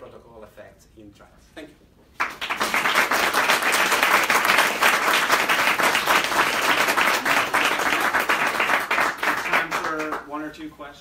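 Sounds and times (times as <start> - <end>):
audience applauding: 2.2 - 10.2.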